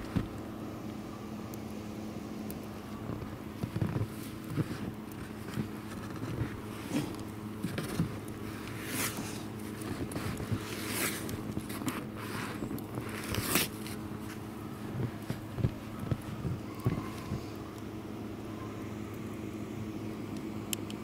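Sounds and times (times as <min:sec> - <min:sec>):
steady low hum: 0:00.0 - 0:21.0
footsteps crunching through snow: 0:03.0 - 0:17.4.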